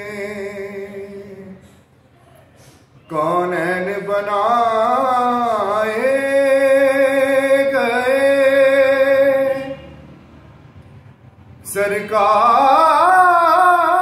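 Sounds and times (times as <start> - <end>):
man singing unaccompanied: 0.0 - 1.6, 3.0 - 10.0, 11.6 - 14.0.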